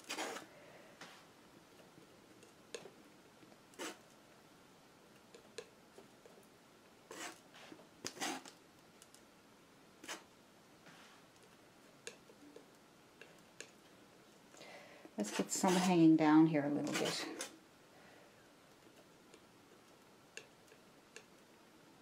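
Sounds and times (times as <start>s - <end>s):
palette knife scraping paint on canvas: 0.0s - 0.5s, 3.8s - 4.0s, 7.1s - 8.6s, 10.0s - 10.3s, 15.2s - 16.1s, 16.8s - 17.5s.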